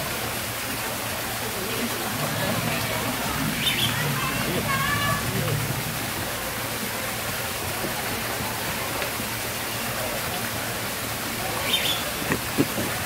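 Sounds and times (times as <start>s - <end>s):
running water rushing: 0.0s - 13.0s.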